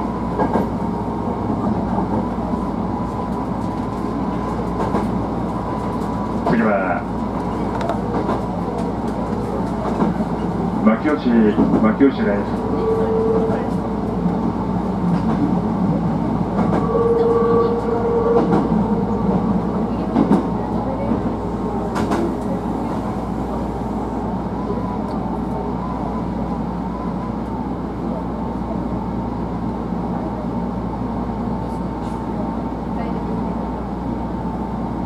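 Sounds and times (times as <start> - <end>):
train wheels rumbling on rail: 0.0 - 35.0
rail joint clacks: 0.3 - 0.8, 7.3 - 15.6, 16.4 - 23.8.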